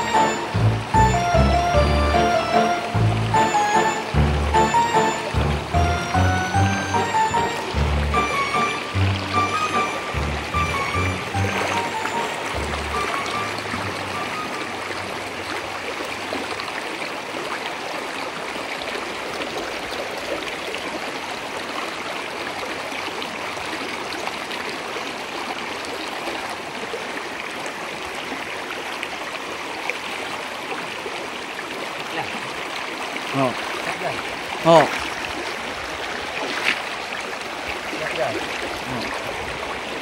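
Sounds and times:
river flowing over stones: 0:00.0 - 0:40.0.

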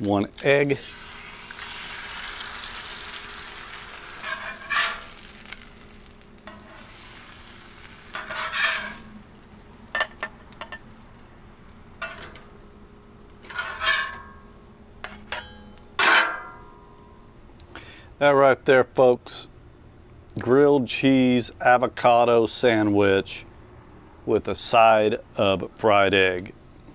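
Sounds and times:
egg sizzling in oil: 0:00.7 - 0:14.8
metal spatula scraping griddle: 0:03.1 - 0:09.3, 0:12.0 - 0:12.6, 0:13.4 - 0:16.5.

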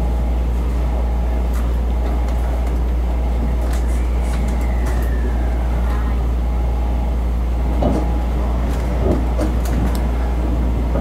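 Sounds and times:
train cabin low hum: 0:00.0 - 0:11.0.

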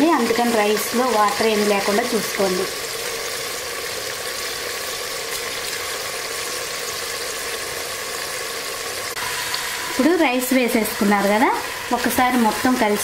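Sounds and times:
food sizzling in a pot: 0:00.0 - 0:13.0.

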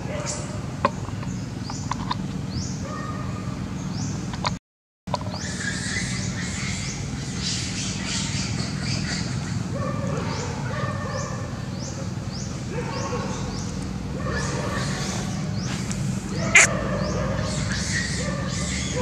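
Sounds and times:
bird chirping: 0:11.7 - 0:19.0.

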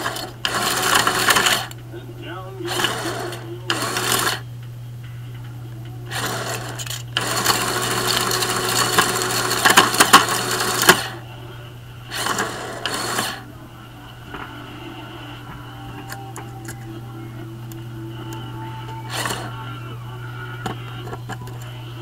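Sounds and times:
shredder crunching aluminum foil: 0:00.0 - 0:01.8, 0:02.7 - 0:04.4, 0:06.1 - 0:11.2, 0:12.1 - 0:13.4, 0:19.0 - 0:19.6
steady low hum: 0:00.0 - 0:22.0.

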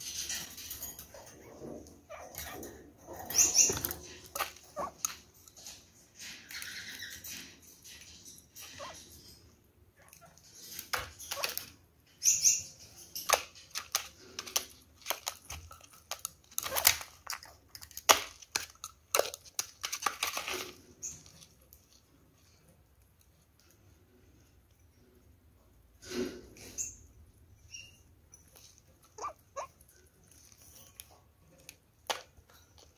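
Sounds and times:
birds scrabbling on cage floor: 0:00.0 - 0:09.5, 0:10.2 - 0:21.6.

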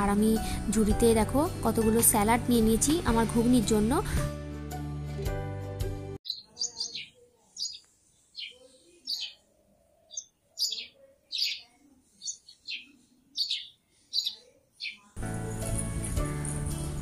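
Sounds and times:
background music: 0:00.0 - 0:06.2, 0:15.2 - 0:17.0
small bird chirping: 0:06.2 - 0:15.2.

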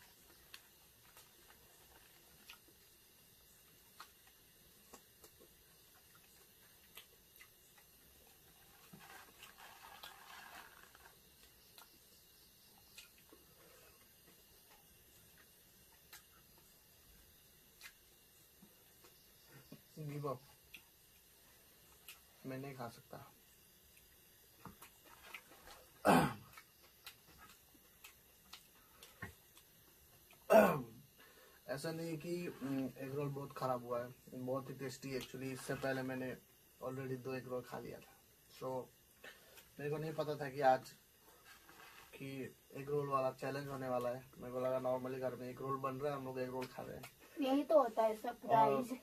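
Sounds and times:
person clearing their throat: 0:26.0 - 0:26.5, 0:30.5 - 0:31.0.

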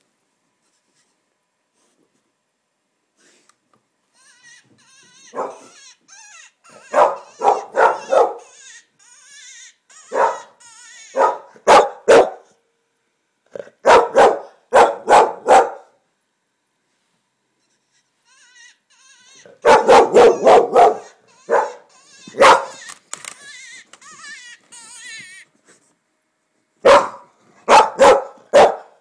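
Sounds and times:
dog barking loudly: 0:05.3 - 0:05.7, 0:06.8 - 0:08.5, 0:10.1 - 0:12.5, 0:13.8 - 0:16.0, 0:19.6 - 0:22.8, 0:26.8 - 0:29.0.

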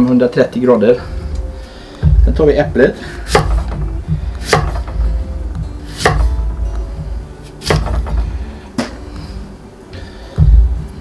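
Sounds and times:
knife chopping on wooden board: 0:03.3 - 0:05.2, 0:05.9 - 0:06.5, 0:07.5 - 0:09.0.

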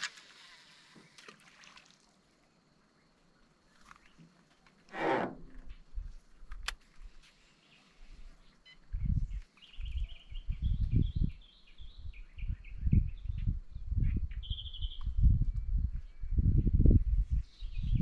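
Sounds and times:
bird chirping: 0:07.4 - 0:16.4.

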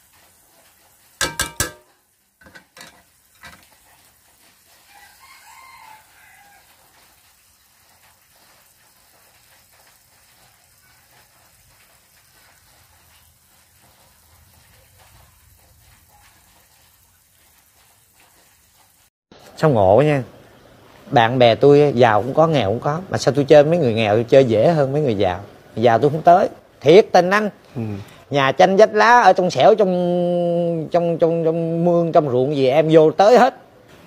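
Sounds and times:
frying pan sizzling: 0:00.0 - 0:34.0
chicken crowing: 0:04.8 - 0:06.9.

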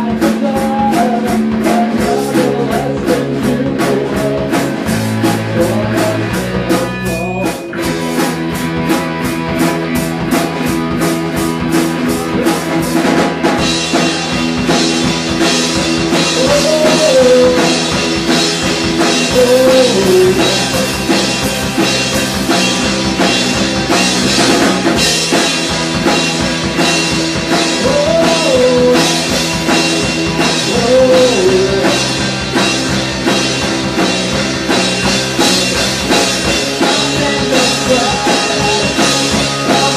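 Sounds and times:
man singing: 0:00.0 - 0:07.9, 0:12.0 - 0:14.6, 0:16.0 - 0:21.6, 0:27.5 - 0:32.6, 0:36.5 - 0:39.9
bass guitar: 0:00.0 - 0:39.9
drum kit beat: 0:00.0 - 0:39.9
electric guitar: 0:00.0 - 0:39.9.

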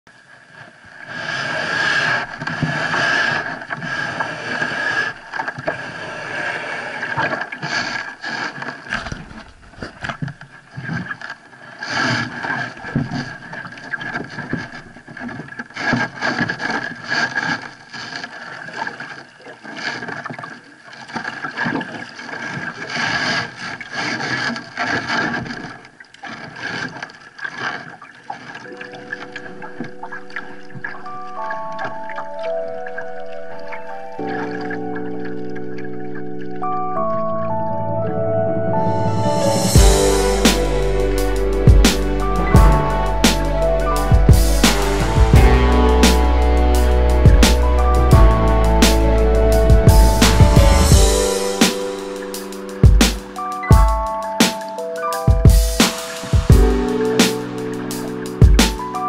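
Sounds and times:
water slapping against kayak hull: 0:07.0 - 0:31.0.

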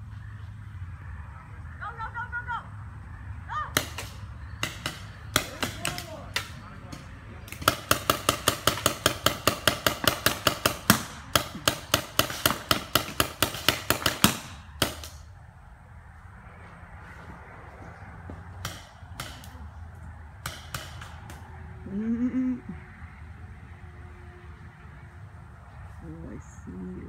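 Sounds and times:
paintball markers firing: 0:03.8 - 0:15.2.

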